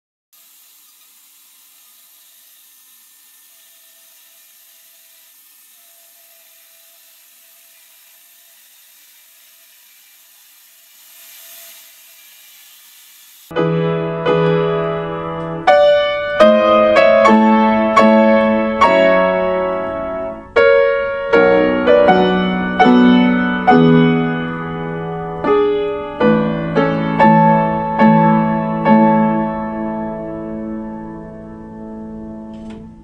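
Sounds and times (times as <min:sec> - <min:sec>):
slow solo piano melody: 0:13.5 - 0:32.6.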